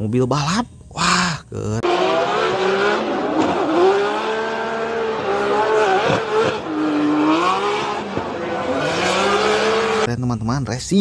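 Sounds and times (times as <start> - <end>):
race car engine revving: 1.8 - 10.1.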